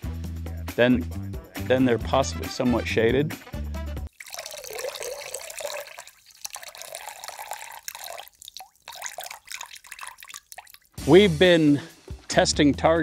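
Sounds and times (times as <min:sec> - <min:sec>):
water trickling and dripping: 0:04.1 - 0:11.0.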